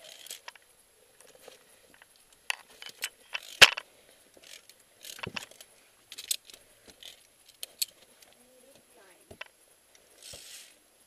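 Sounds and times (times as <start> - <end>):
metal gear clinking on cable: 0.0 - 0.6, 2.5 - 3.8, 4.4 - 8.0.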